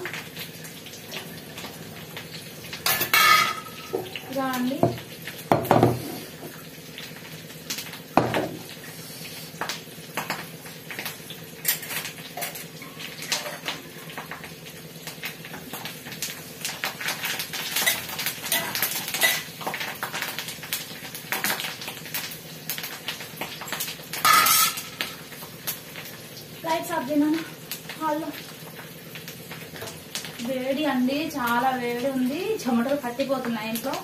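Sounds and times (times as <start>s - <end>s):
faint frying sizzle: 0.0s - 34.0s
ladle scraping a frying pan: 24.2s - 24.9s.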